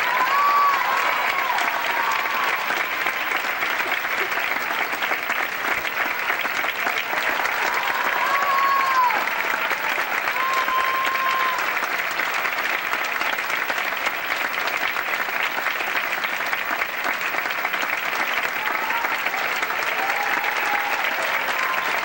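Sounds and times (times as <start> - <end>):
audience applauding: 0.0 - 22.0.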